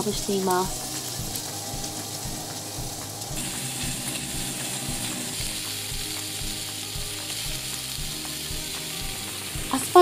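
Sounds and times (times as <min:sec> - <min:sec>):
food sizzling in a frying pan: 0:00.0 - 0:10.0.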